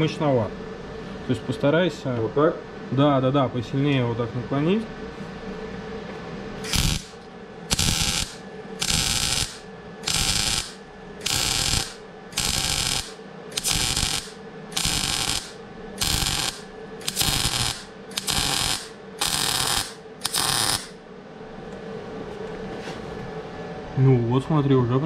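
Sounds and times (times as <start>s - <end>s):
welding arc crackling: 6.6s - 21.0s.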